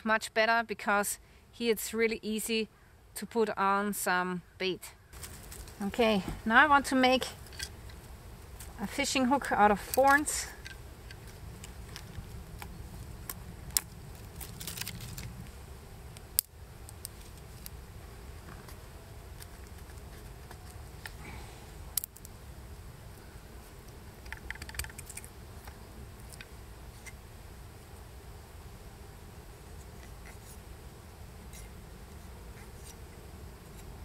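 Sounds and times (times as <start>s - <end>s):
twigs snapping: 9.9s - 15.5s, 21.9s - 22.3s.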